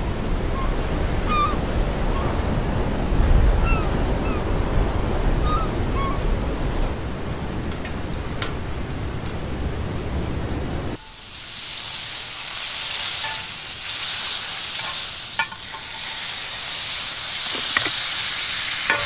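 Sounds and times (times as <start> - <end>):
surf: 0.0 - 11.0
wind: 0.0 - 19.0
short bird calls: 0.5 - 2.4, 5.4 - 6.4.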